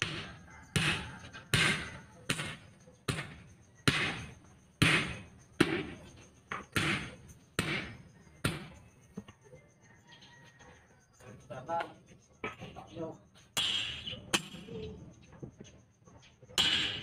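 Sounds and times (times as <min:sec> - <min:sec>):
hammer striking steel rim: 0:00.0 - 0:06.0, 0:13.6 - 0:14.7.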